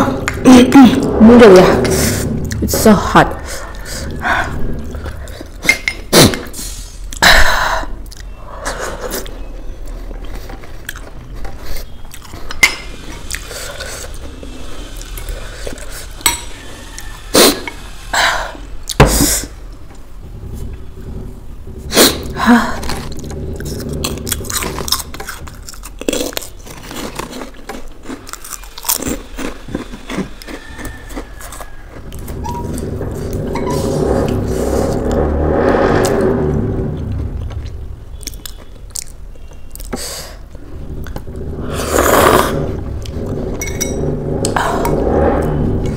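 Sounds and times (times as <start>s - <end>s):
chewing noodles: 9.1s - 16.2s, 22.9s - 33.4s, 37.5s - 40.0s.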